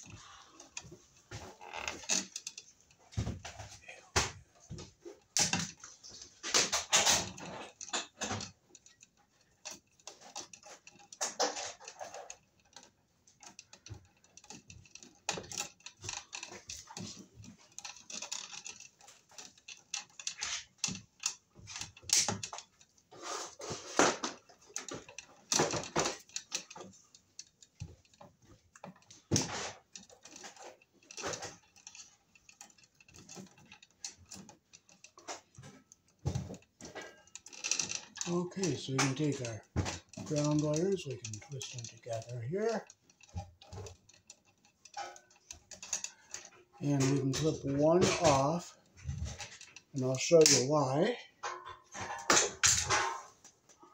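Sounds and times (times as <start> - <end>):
cable wires rustling: 0.0 - 53.9.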